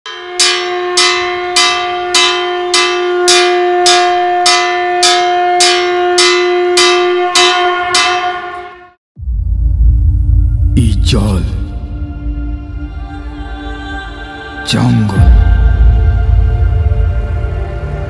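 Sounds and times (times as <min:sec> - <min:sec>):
temple bell strikes ringing: 0:00.1 - 0:09.0
deep held tone: 0:00.1 - 0:14.2.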